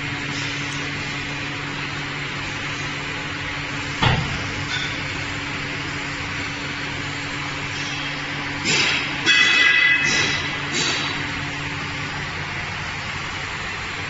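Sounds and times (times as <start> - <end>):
machine hum: 0.0 - 14.0
loud clunk: 4.0 - 5.1.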